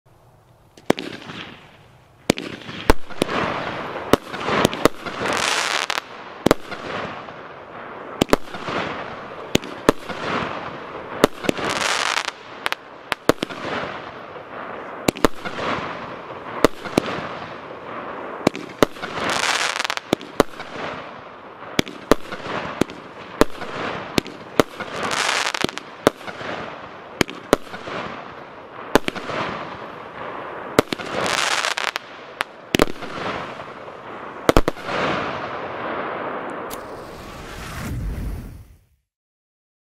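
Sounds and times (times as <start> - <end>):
firework reports: 0.8 - 39.1
hissing firework spray: 36.6 - 39.0.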